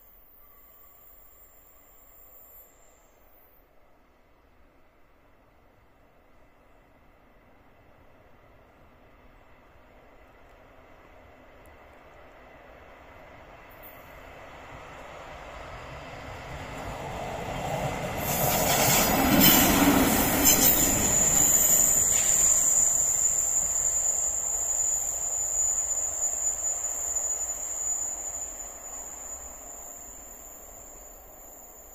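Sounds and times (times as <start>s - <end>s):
diesel railcar passing: 0.0s - 31.9s
train clicks: 17.2s - 23.9s
high wheel squeal: 18.2s - 31.9s.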